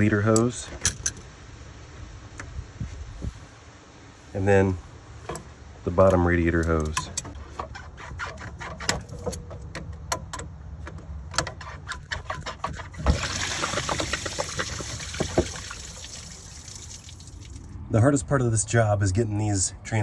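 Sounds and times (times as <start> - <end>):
coolant splashing into a pan: 13.0 - 17.7.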